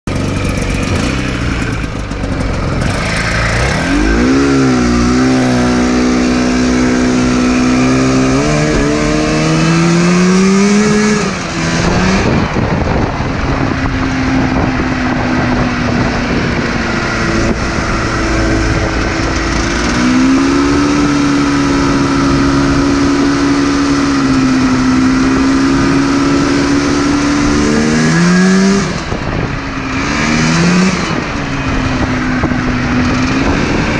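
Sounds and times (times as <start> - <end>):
go-kart engine revving: 0.1 - 33.9
wind rushing over microphone: 0.2 - 33.9.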